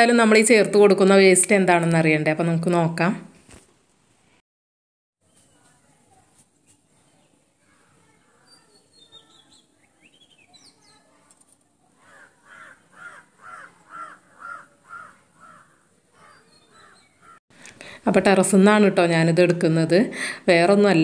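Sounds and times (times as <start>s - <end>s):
small birds chirping: 5.2s - 17.4s
crow cawing: 12.0s - 17.4s.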